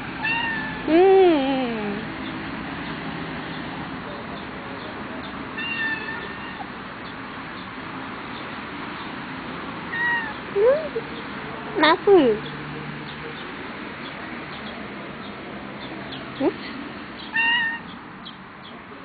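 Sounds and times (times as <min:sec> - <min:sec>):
kitten meows: 0:00.2 - 0:00.9, 0:05.6 - 0:06.7, 0:09.9 - 0:10.4, 0:17.3 - 0:17.8.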